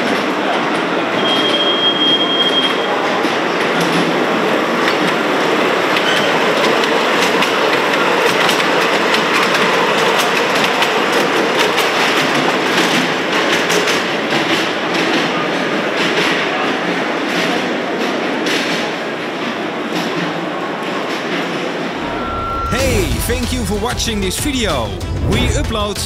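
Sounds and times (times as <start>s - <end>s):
model train wheels clicking: 3.5s - 16.6s.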